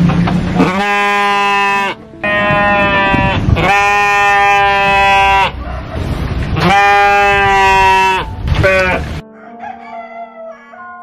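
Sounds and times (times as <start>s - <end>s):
sheep bleating: 0.6s - 5.6s, 6.6s - 9.1s
soft background music: 1.5s - 3.8s, 8.1s - 11.0s.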